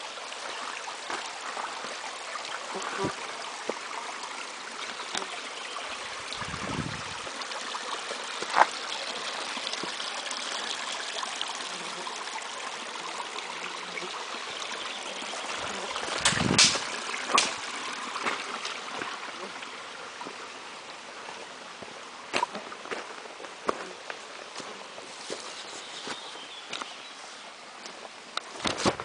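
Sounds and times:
brook running: 0:00.0 - 0:29.0
sharp cracks and low thumps: 0:16.2 - 0:17.6.

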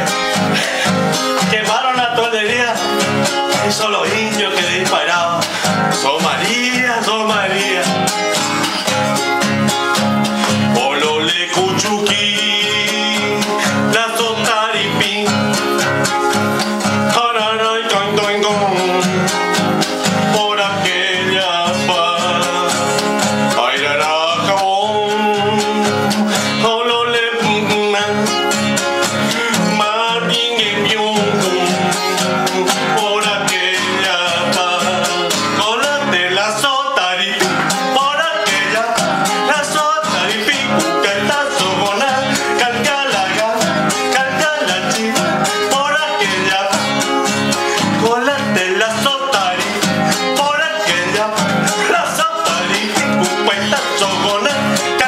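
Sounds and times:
man singing: 0:00.0 - 0:55.0
strummed classical guitar: 0:00.0 - 0:55.0.

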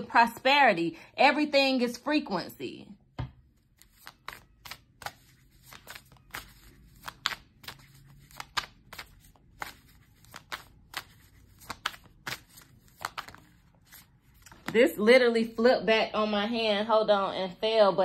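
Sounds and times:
cards being shuffled: 0:03.4 - 0:14.8.

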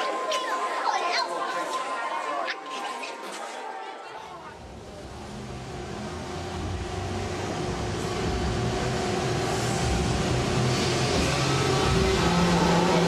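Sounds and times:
ride vehicle mechanical hum: 0:04.6 - 0:13.0.

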